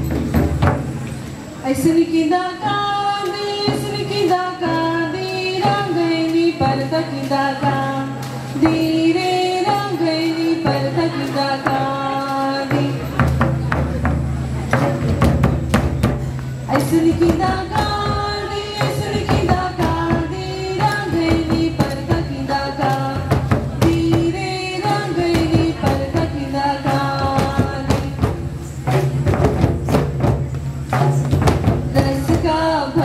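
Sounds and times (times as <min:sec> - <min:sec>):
hand drums beating: 0:00.0 - 0:01.9, 0:03.0 - 0:33.0
group singing folk song: 0:16.7 - 0:29.5.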